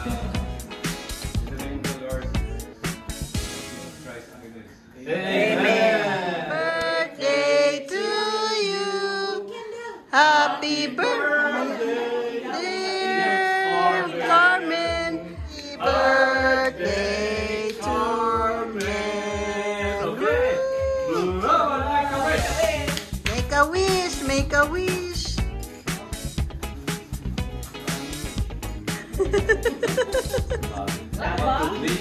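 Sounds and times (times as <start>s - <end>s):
low bass beat: 0.0s - 3.8s
voices singing held notes: 10.1s - 21.4s.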